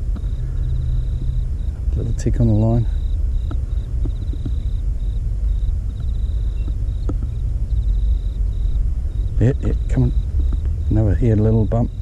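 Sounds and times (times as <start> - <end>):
faint ticks: 0.0 - 1.4, 3.4 - 4.8, 5.6 - 8.2, 10.4 - 10.8
insects chirping in trills: 0.0 - 12.0
low steady rumble: 0.0 - 12.0.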